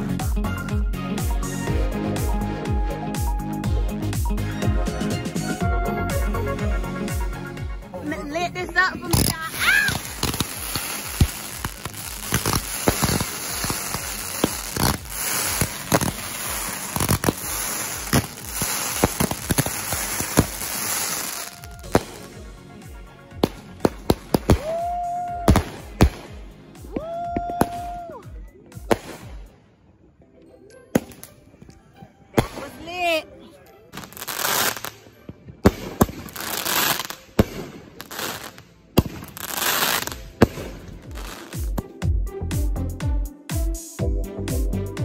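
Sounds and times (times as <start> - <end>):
firework crackles and bangs: 9.1 - 22.5, 23.3 - 29.5, 34.0 - 41.8
firework whistles: 9.2 - 22.4, 24.3 - 25.9.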